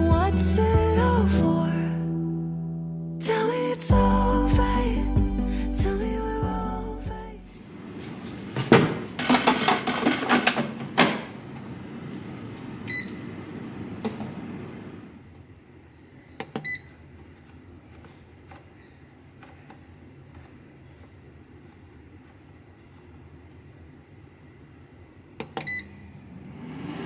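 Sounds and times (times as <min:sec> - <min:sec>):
air fryer basket rattling and clunking: 0:08.6 - 0:11.4.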